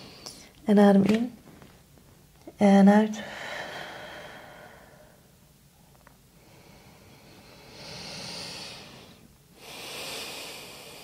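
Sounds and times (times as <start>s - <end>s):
person breathing deeply: 3.2s - 5.3s, 6.3s - 11.0s.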